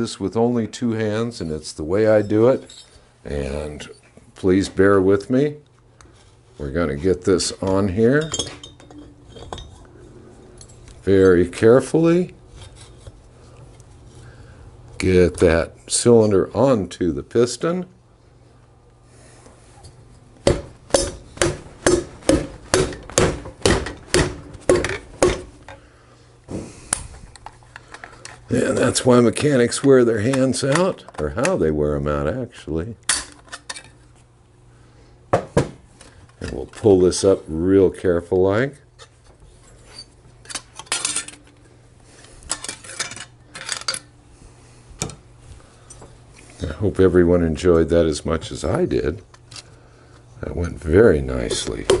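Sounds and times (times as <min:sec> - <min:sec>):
metal clinking and scraping: 0:01.5 - 0:03.0, 0:08.0 - 0:11.0, 0:39.0 - 0:41.6, 0:42.5 - 0:44.1.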